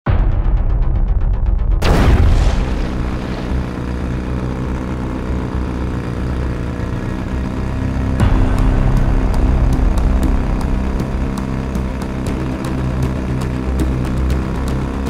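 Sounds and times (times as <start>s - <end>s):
loud blast: 0.1s - 5.0s
jet ski engines droning: 1.8s - 15.0s.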